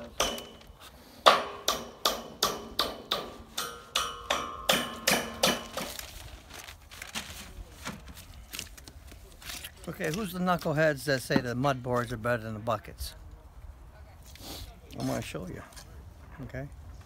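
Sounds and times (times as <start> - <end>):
hammer striking metal: 0.0 - 0.6, 1.2 - 5.8.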